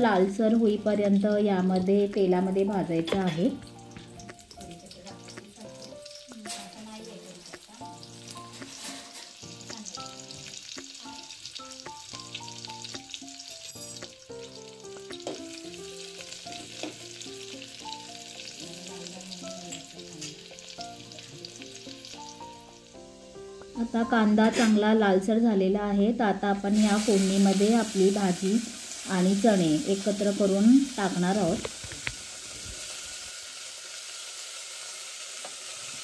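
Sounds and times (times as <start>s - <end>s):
onion sizzling in hot oil: 0.0s - 25.3s, 26.2s - 36.0s
soft melodic tune: 0.2s - 24.4s.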